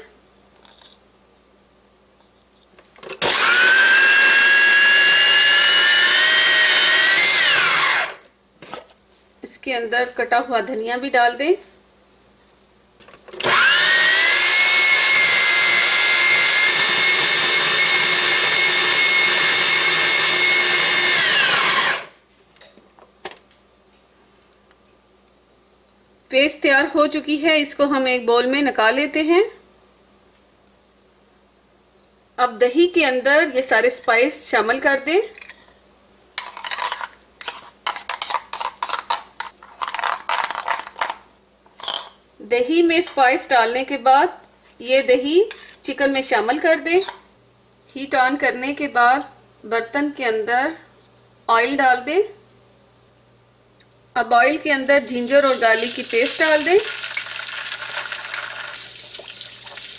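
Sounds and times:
food processor motor whining: 3.2s - 8.2s, 13.4s - 22.1s, 55.3s - 58.9s
metal spoon scraping a bowl: 36.4s - 40.9s, 45.5s - 45.8s.

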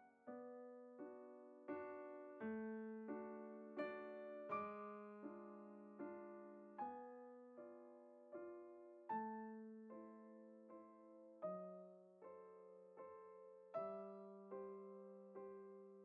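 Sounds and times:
soft piano chords: 0.0s - 16.0s.

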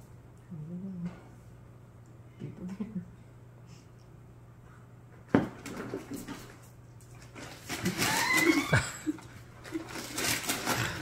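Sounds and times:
paper bag rustling and crinkling: 7.2s - 11.0s.

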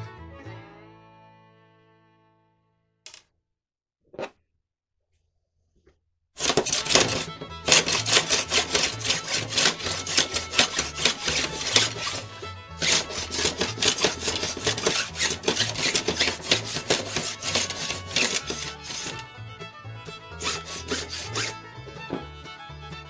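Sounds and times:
background music: 0.0s - 2.6s, 6.4s - 23.0s
block plane scraping wood: 6.4s - 19.3s, 20.3s - 22.4s.

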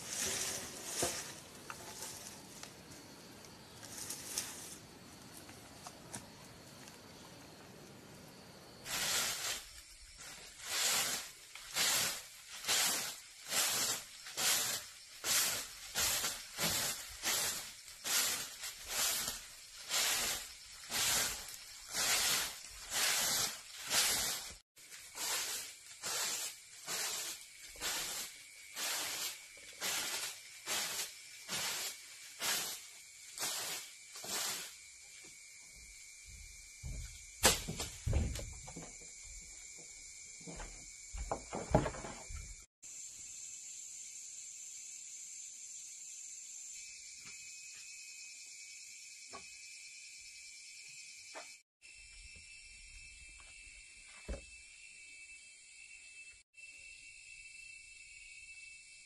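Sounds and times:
broom sweeping: 0.0s - 2.8s, 3.7s - 5.5s, 8.8s - 35.4s
sharp knock: 37.4s - 38.4s.

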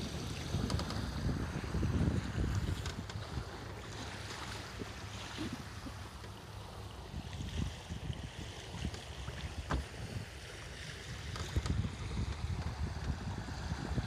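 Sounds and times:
wind buffeting microphone: 0.0s - 4.5s, 7.0s - 14.0s
water rushing along hull: 0.0s - 14.0s.

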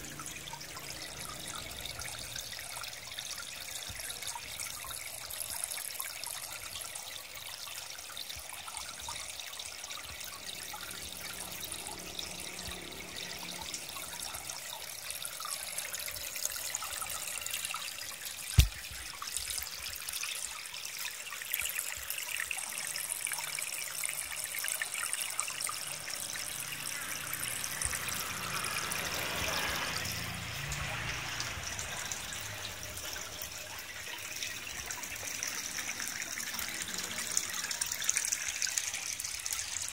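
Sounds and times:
water trickling into pond: 0.0s - 39.9s
sharp click: 18.5s - 18.8s.

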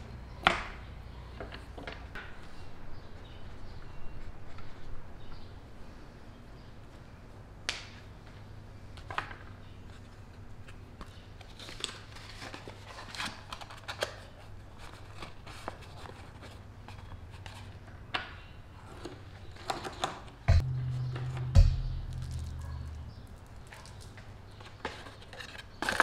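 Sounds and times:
steady low hum: 20.4s - 24.5s.

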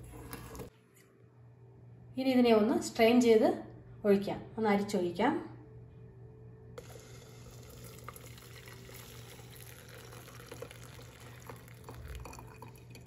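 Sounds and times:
tea pouring into steel cup: 6.8s - 13.0s.

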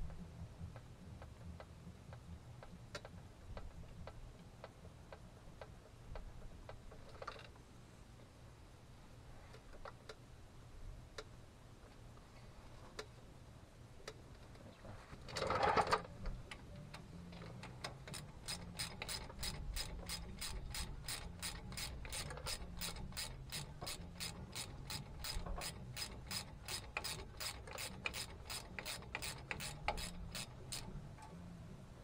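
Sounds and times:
hand ratchet clicking: 17.6s - 31.0s.

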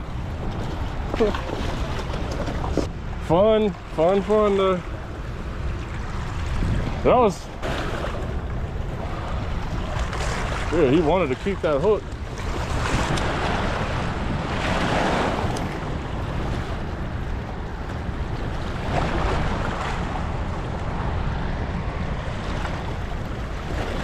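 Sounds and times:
turbulent water rushing: 0.0s - 24.0s
wind buffeting microphone: 4.9s - 24.0s.

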